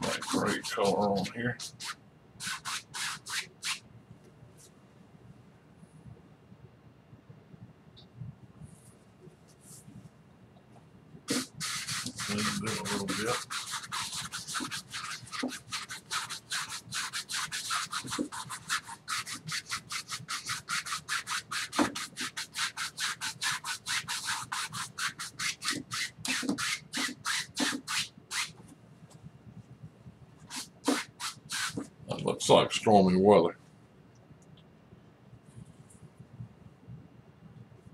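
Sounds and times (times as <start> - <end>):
paintbrush scrubbing on canvas: 0.0 - 3.8, 11.3 - 28.6, 30.4 - 32.0.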